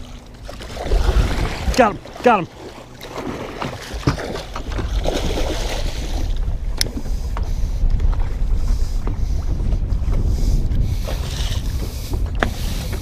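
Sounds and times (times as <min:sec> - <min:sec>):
wind rumbling on microphone: 0:00.0 - 0:02.2, 0:03.2 - 0:13.0
water washing around boat: 0:00.0 - 0:13.0.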